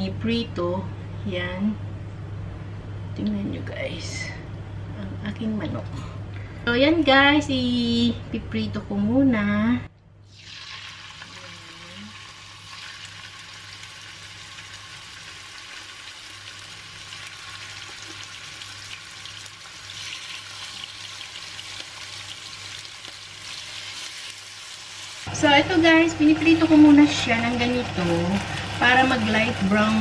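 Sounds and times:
chicken sizzling in hot oil: 0:10.3 - 0:30.0.

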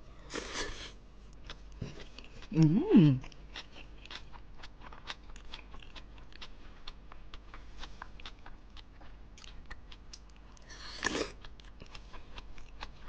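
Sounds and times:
chewing food crunching: 0:01.3 - 0:13.0.

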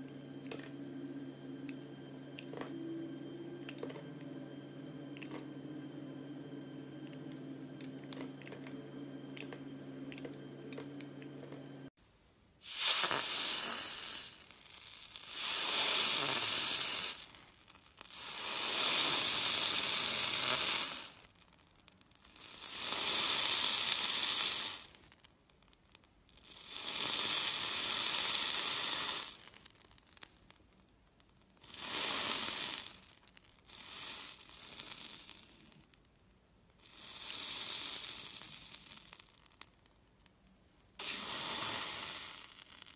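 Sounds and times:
steady tones: 0:00.0 - 0:12.0.

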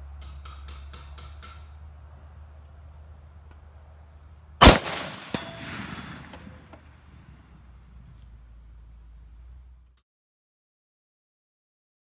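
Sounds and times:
rifle shot with echo: 0:04.6 - 0:07.2.

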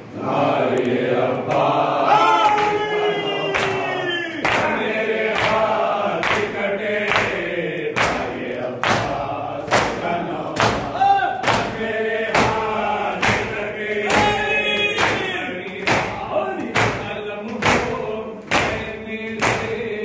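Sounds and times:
men chanting in unison: 0:00.0 - 0:20.0
hand slaps on chests: 0:10.6 - 0:12.6, 0:15.0 - 0:19.8.

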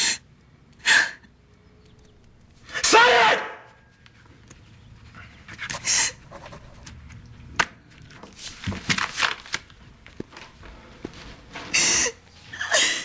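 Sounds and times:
cloth and paper rustling: 0:08.0 - 0:12.6.

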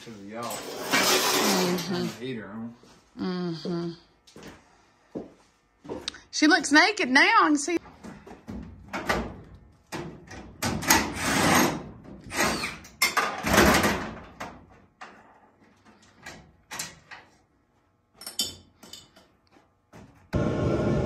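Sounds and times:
sheet metal scraping and rattling: 0:00.4 - 0:02.2.

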